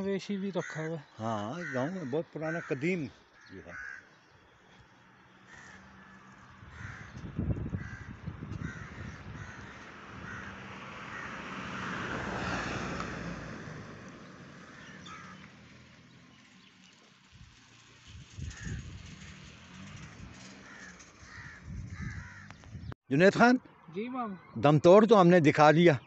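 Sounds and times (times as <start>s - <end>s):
crows cawing: 0.3s - 12.8s, 14.6s - 15.6s, 18.4s - 19.5s, 20.6s - 22.7s.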